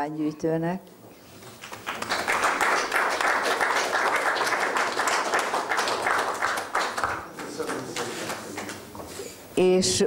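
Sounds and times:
audience applauding: 1.5 - 8.9.

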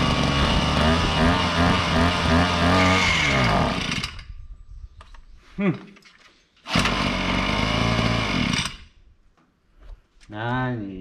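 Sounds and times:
small engine surging and stalling: 0.0 - 4.3, 6.6 - 9.0.

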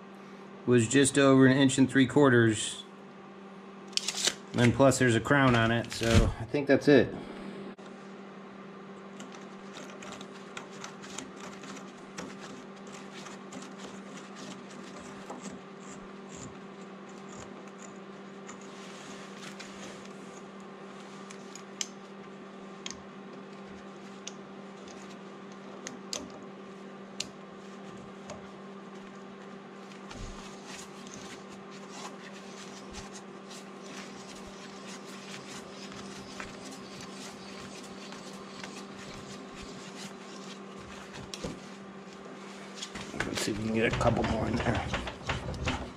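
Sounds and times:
steady low hum: 0.0 - 45.9.

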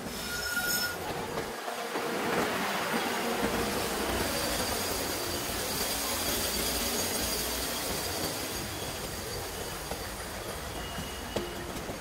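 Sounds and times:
high wheel squeal: 0.0 - 1.1, 4.2 - 11.8
train wheels rumbling on rails: 0.0 - 12.0.

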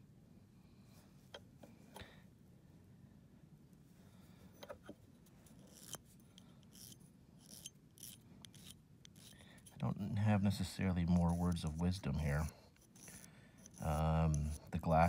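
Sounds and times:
nail file scraping claw: 5.4 - 15.0.

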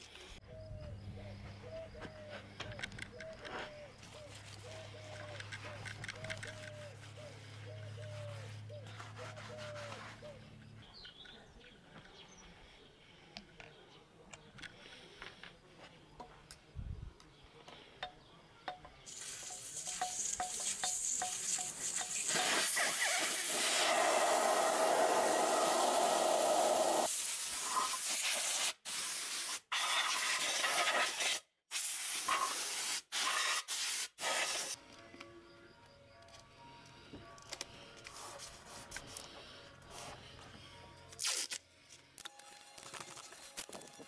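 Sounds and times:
compressed air blow gun hissing: 19.1 - 34.8.

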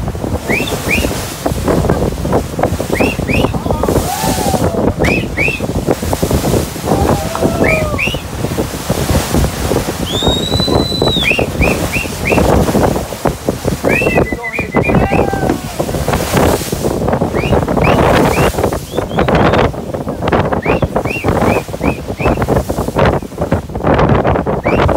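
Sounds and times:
water rushing along boat hull: 0.0 - 24.9
wind on microphone: 0.0 - 24.9.

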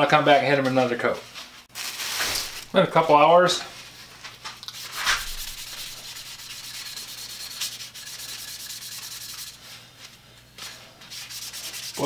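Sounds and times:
scouring pad scrubbing wood: 4.8 - 9.6, 11.2 - 12.0.

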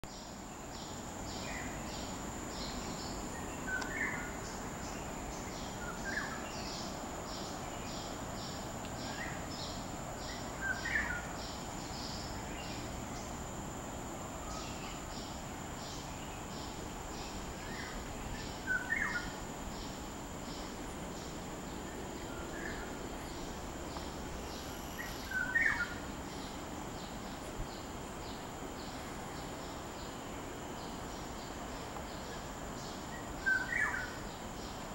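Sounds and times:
high insect drone: 0.1 - 34.9
pulsing insect chirp: 0.1 - 34.9.

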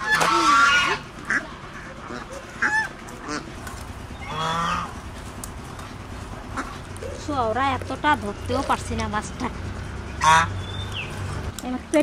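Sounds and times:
fowl calling: 0.0 - 7.4, 9.9 - 11.4.

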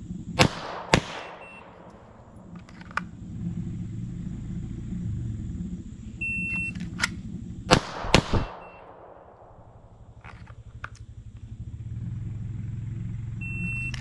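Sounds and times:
steady low rumble: 0.0 - 14.0
pistol shots with echo: 0.4 - 2.6, 6.9 - 10.2
shot timer start signal: 13.4 - 14.0.

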